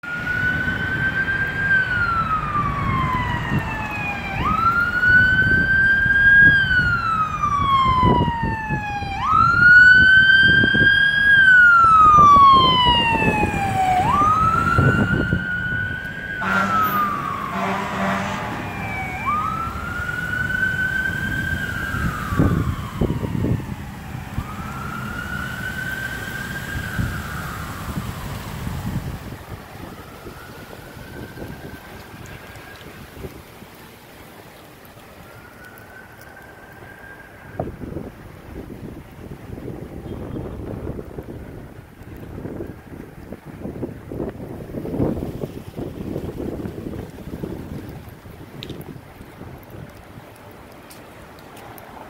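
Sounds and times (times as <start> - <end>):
fire engine siren wailing: 0.0 - 52.0
short horn blasts: 16.4 - 18.6.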